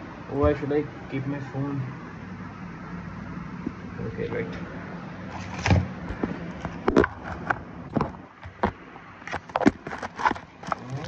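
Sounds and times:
objects clattering knocks and clicks: 5.3s - 11.0s.

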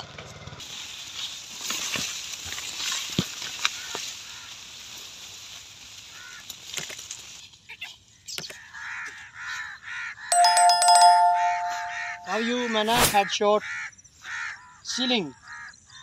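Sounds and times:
leaves rustling: 0.6s - 8.2s
two-tone bell ding with clicks: 10.3s - 12.4s.

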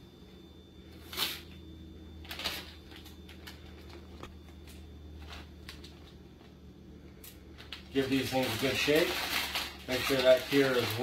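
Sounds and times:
steady low hum: 0.0s - 11.0s
plastic bag crinkling: 2.2s - 6.5s, 7.5s - 11.0s.

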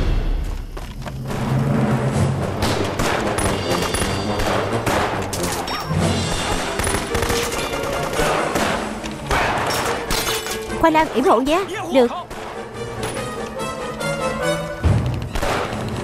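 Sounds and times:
dramatic background music: 0.0s - 16.0s
rapid rifle and machine-gun shots: 2.6s - 12.7s, 14.9s - 16.0s.

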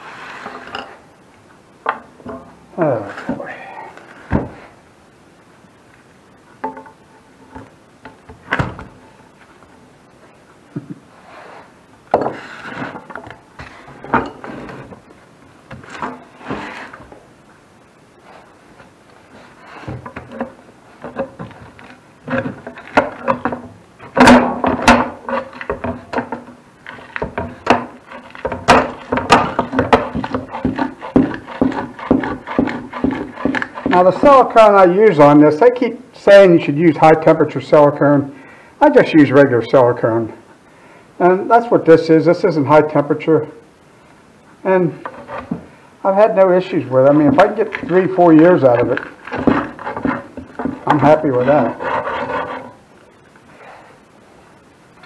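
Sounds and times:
steel bar scraping metal: 48.6s - 52.8s.

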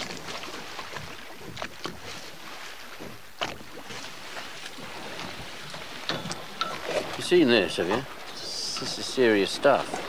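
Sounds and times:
sea noise: 0.0s - 10.0s
wind: 0.0s - 10.0s.

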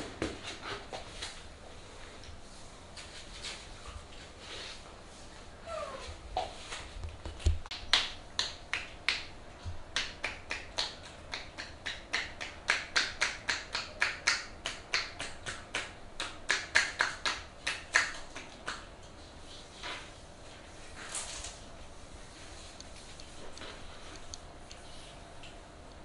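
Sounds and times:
hands clapping on a forearm: 7.7s - 9.3s, 9.9s - 18.9s.

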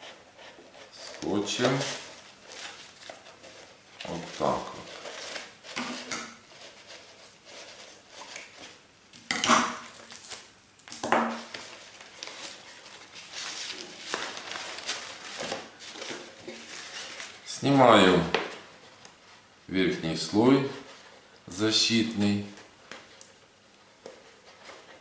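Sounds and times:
paper rustling and crinkling: 0.4s - 8.8s, 9.8s - 19.5s, 24.0s - 25.0s.

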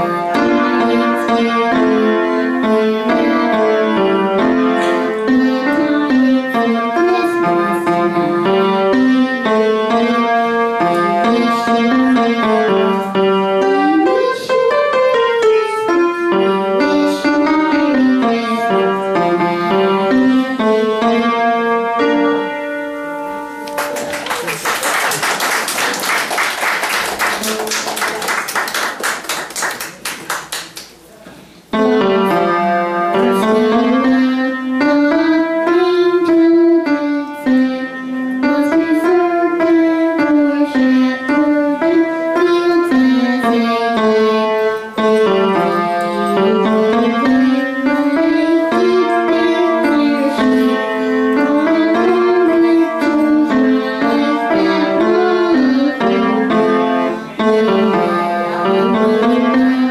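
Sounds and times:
upright piano playing: 0.0s - 30.8s, 31.7s - 59.9s
applause: 23.7s - 30.9s.

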